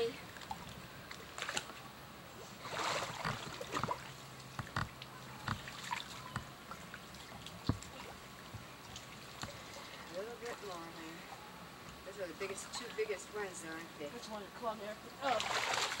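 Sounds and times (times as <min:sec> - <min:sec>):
water splashing from wading: 0:00.3 - 0:11.2, 0:15.2 - 0:16.0.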